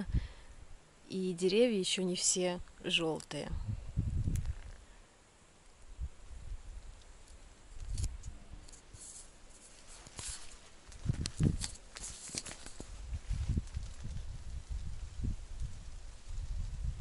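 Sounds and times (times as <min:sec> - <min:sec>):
wind buffeting microphone: 0:03.5 - 0:04.8, 0:10.9 - 0:11.7, 0:12.8 - 0:17.0
camera handling rustles and clicks: 0:07.2 - 0:13.0.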